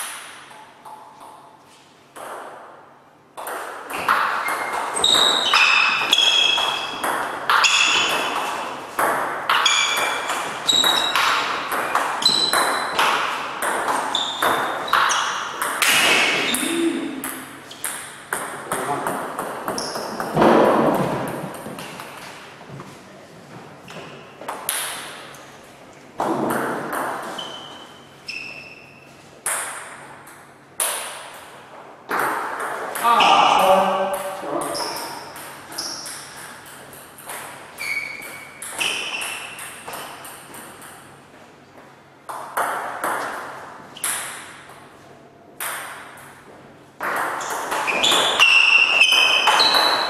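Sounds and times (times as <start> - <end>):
table tennis ball pings: 3.4 - 20.4, 47.0 - 50.0.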